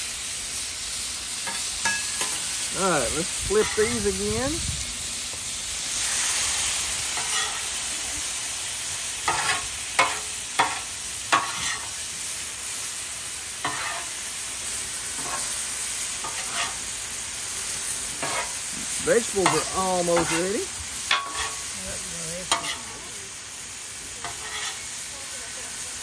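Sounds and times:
vegetables sizzling on a griddle: 0.0s - 26.0s
spatulas scraping on steel: 7.2s - 7.7s, 9.3s - 11.9s, 13.6s - 14.1s, 15.2s - 15.5s, 16.2s - 16.8s, 18.2s - 21.7s, 22.5s - 23.0s, 24.2s - 24.9s.

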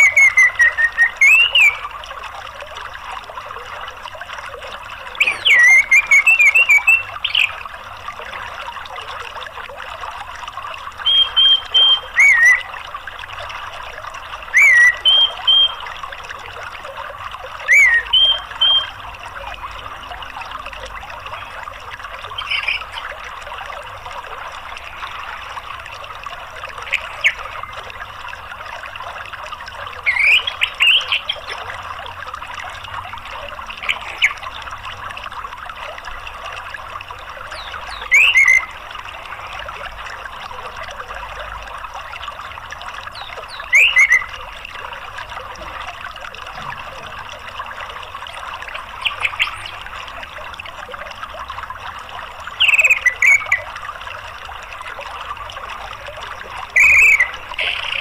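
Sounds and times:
stream water trickling: 0.0s - 58.0s.

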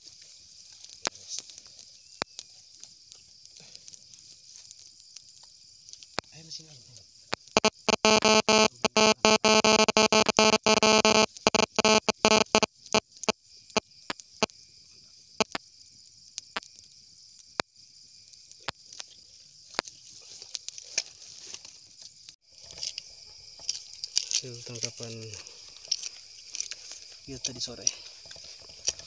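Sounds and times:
night insects chirping: 0.0s - 29.0s
campfire crackling and popping: 0.2s - 6.5s, 7.3s - 8.0s, 16.3s - 21.1s
loud dense buzzing crackle: 7.3s - 13.8s, 15.4s - 15.6s.

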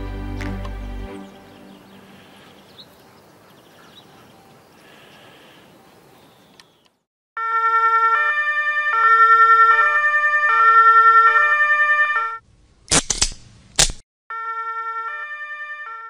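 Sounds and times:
two-tone siren: 7.4s - 12.4s, 14.3s - 16.0s
sharp cracks: 12.8s - 14.0s.

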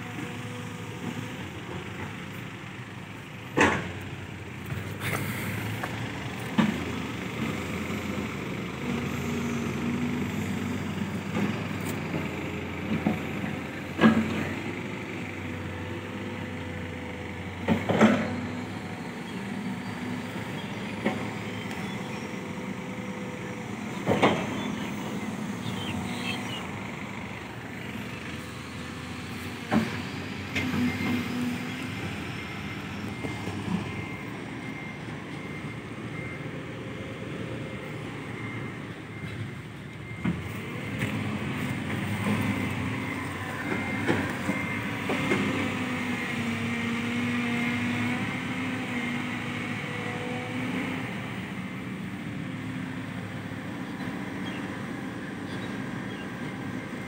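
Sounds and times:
diesel engines running: 0.0s - 57.0s.

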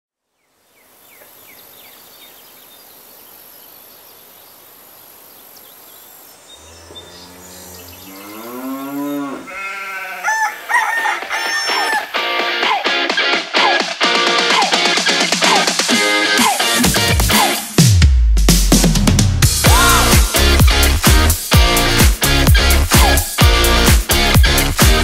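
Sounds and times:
faint bird chirps: 0.4s - 9.4s
farm animal call rising in pitch: 6.6s - 12.1s
electric guitar music: 19.6s - 25.0s.

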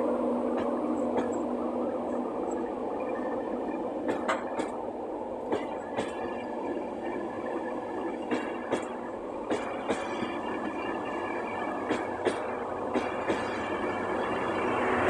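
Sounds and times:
rumble of wheels on rail: 0.0s - 15.0s
clickety-clack wheel clicks: 0.6s - 1.5s, 4.0s - 4.8s, 5.4s - 6.5s, 8.2s - 10.9s, 11.8s - 13.7s.

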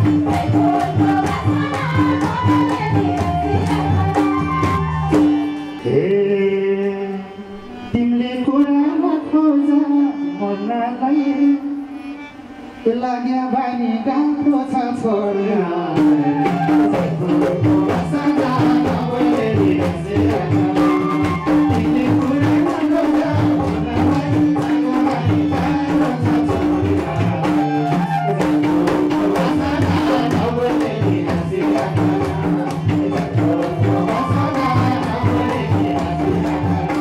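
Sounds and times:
hand drums steady rhythm: 0.0s - 5.6s, 16.0s - 37.0s.

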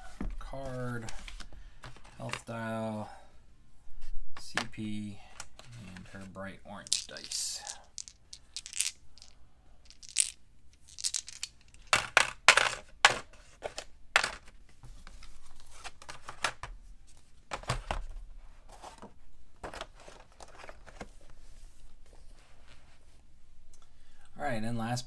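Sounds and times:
dice clattering: 6.8s - 13.2s
game pieces clicking and knocking: 6.8s - 13.3s.

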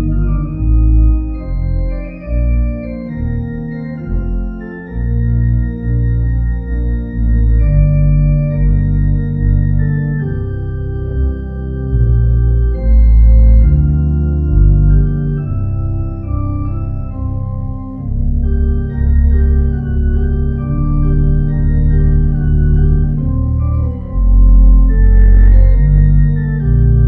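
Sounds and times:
church organ chords: 0.0s - 27.0s.

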